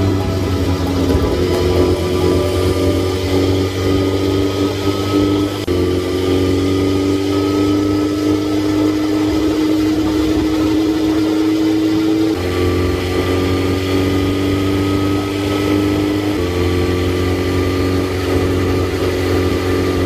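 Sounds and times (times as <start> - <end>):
motorcycle engine running: 0.0 - 20.0
wind and road noise: 0.0 - 20.0.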